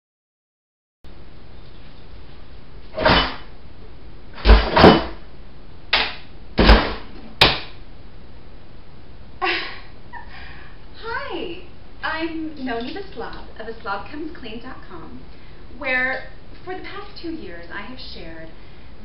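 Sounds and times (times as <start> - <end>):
drawer knocking and rattling: 4.4 - 5.2.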